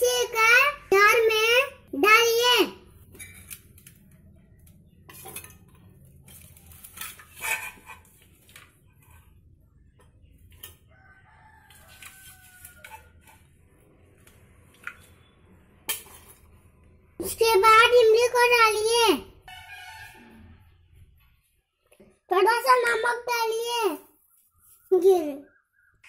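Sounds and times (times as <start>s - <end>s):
spoon scraping steel pan: 6.3s - 8.2s, 11.8s - 13.6s
faint rooster crowing: 10.7s - 13.5s.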